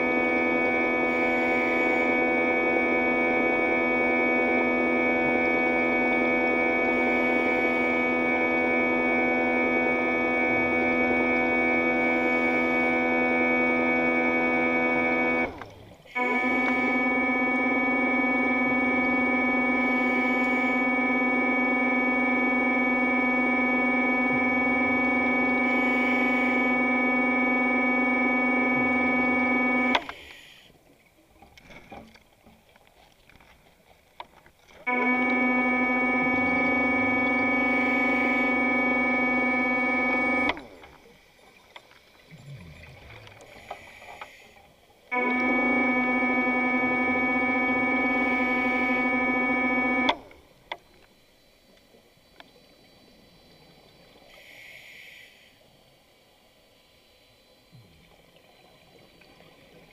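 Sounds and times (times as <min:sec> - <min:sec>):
synthesizer drone: 0:00.0 - 0:15.4, 0:34.9 - 0:40.6
faint underwater ambience: 0:00.0 - 0:59.9.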